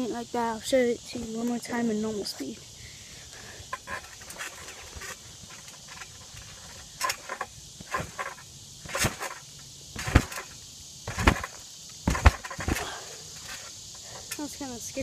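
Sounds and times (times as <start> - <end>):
trampoline landing thumps: 3.7 - 13.7.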